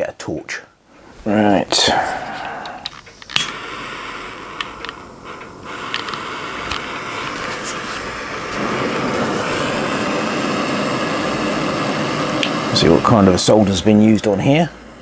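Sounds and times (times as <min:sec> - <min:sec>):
blowtorch hissing: 0:01.8 - 0:15.0.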